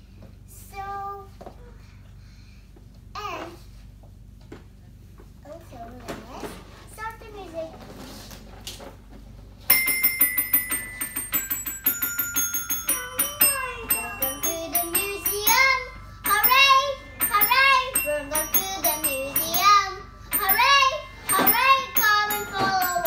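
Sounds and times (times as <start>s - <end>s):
electronic keyboard notes: 9.7s - 23.0s
girl singing: 13.0s - 23.0s.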